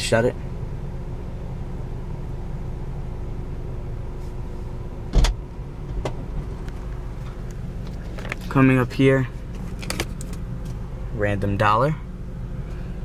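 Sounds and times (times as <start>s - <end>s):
low cabin hum: 0.0s - 13.0s
latch click: 5.1s - 6.2s
liftgate thump: 5.1s - 6.2s.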